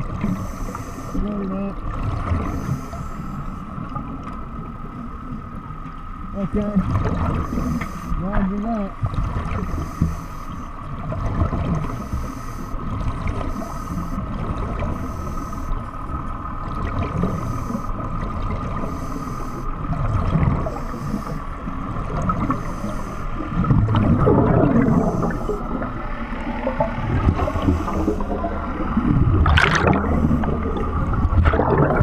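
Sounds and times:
diver breathing underwater: 0:00.0 - 0:01.2, 0:02.2 - 0:03.8, 0:07.2 - 0:08.2, 0:09.5 - 0:10.8, 0:11.8 - 0:16.1, 0:17.0 - 0:32.0
steady underwater hum: 0:00.0 - 0:32.0
air bubbling: 0:23.6 - 0:25.8, 0:26.8 - 0:32.0.

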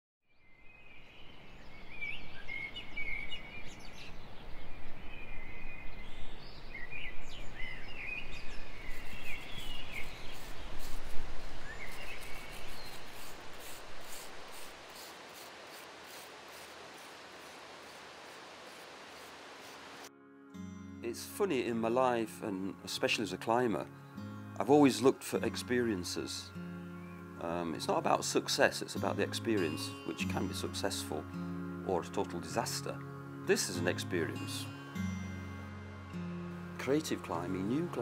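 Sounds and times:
birds chirping: 0:00.5 - 0:20.1, 0:23.1 - 0:38.0
soft scratching strokes: 0:08.5 - 0:20.1
steady rushing noise: 0:08.7 - 0:20.1.

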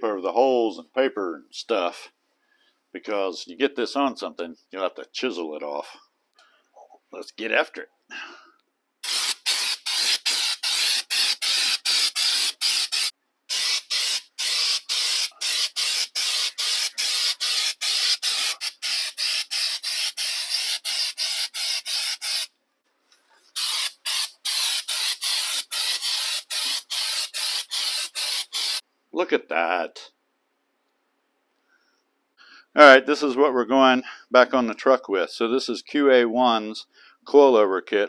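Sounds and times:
aerosol can spraying: 0:09.0 - 0:22.5, 0:23.5 - 0:28.8.

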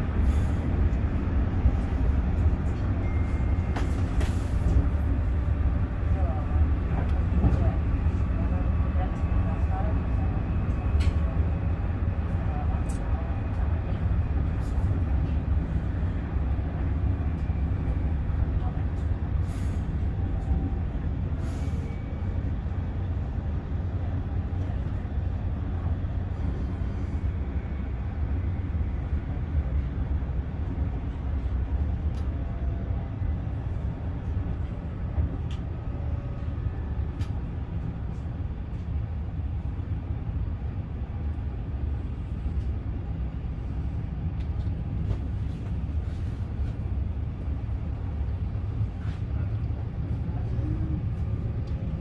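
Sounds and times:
train cabin low rumble: 0:00.0 - 0:52.0.

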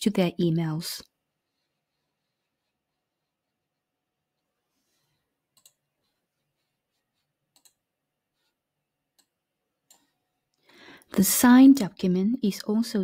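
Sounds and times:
faint computer mouse clicks: 0:05.5 - 0:05.8, 0:07.5 - 0:07.8.

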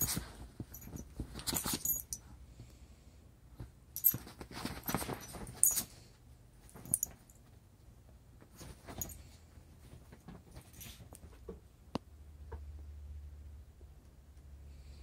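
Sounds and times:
animals scuffling on bedding: 0:04.0 - 0:05.9.

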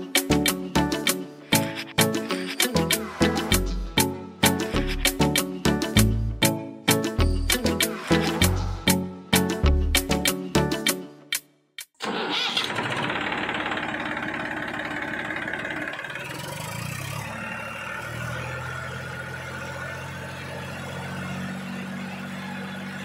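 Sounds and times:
small tractor engine running: 0:12.0 - 0:23.0.

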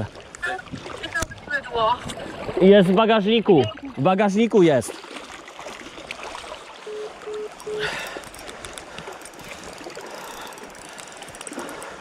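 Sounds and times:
river current rushing: 0:03.9 - 0:12.0
water splash: 0:04.7 - 0:12.0
short beeps: 0:06.8 - 0:08.0.

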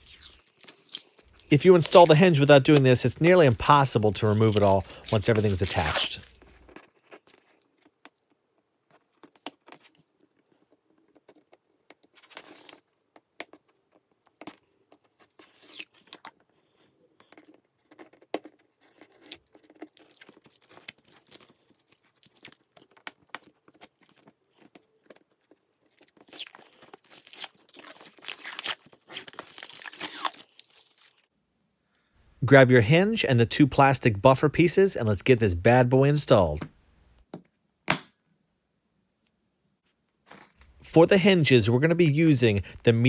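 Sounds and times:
paper peeling and tearing: 0:00.0 - 0:08.1, 0:18.8 - 0:31.3.

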